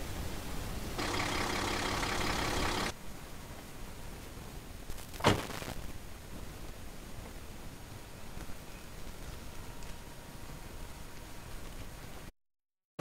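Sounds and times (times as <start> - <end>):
engine idling: 1.0 - 2.9.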